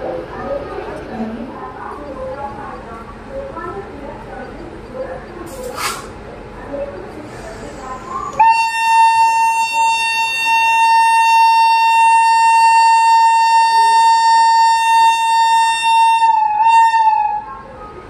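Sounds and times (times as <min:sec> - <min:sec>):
locomotive air horn blast: 0:08.4 - 0:17.4.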